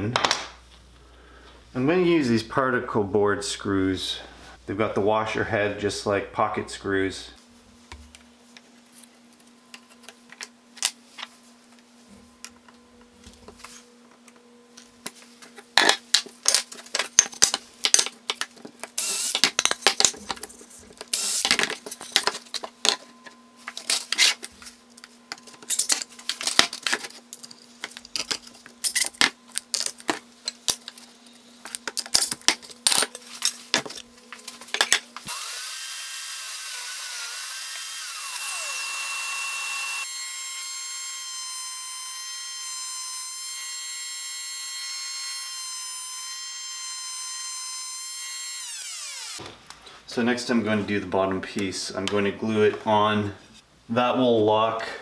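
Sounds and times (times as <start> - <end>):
faint steady hum: 0.0 - 35.6
cordless drill driving screws: 19.0 - 19.5, 35.3 - 49.4.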